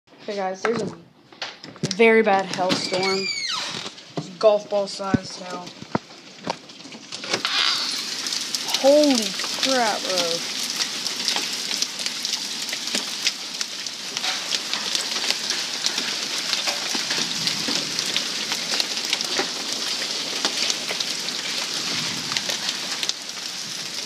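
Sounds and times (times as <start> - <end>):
heavy rain hiss: 7.3 - 24.0.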